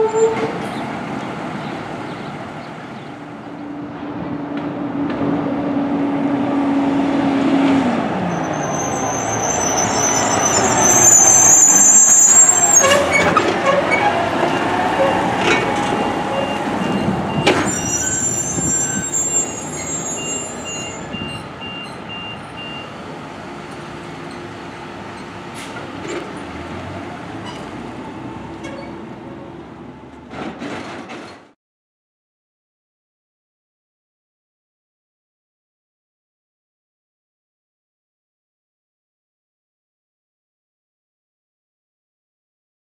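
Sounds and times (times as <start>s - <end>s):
diesel trucks driving past: 0.2s - 31.2s.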